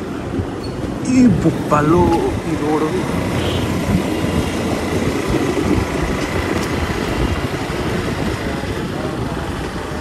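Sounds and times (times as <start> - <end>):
wind on microphone: 3.6 - 10.0.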